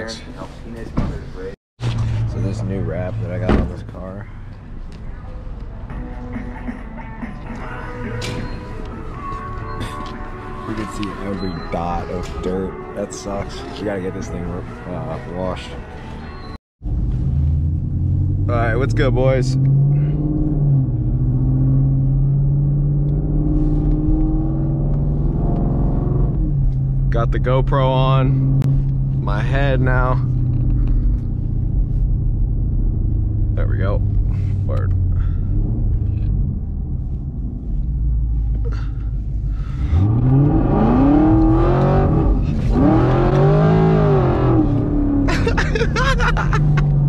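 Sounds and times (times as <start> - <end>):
car engine at low revs: 16.9 - 47.0.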